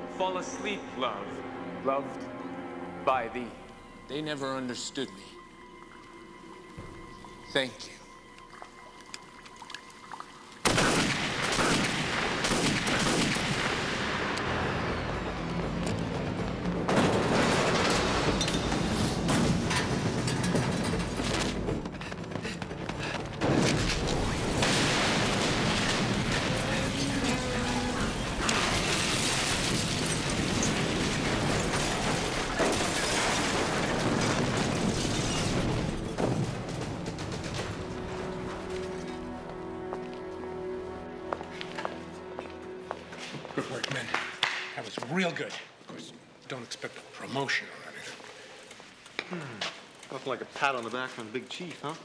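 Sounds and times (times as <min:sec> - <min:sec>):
crackling fire burn: 0:05.0 - 0:40.3
sudden bangs: 0:16.6 - 0:21.7, 0:23.4 - 0:38.6
explosion blast: 0:16.8 - 0:20.2, 0:23.4 - 0:38.2
debris crashing down: 0:16.9 - 0:21.9, 0:23.4 - 0:38.9.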